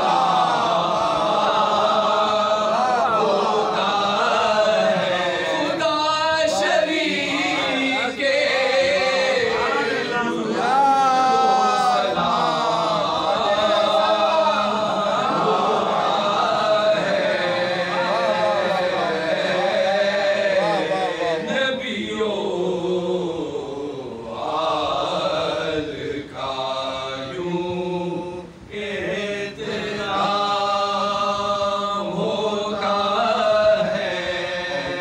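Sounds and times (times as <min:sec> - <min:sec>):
men chanting together: 0:00.0 - 0:35.0
lead voice at microphone: 0:05.0 - 0:16.1, 0:17.0 - 0:21.8.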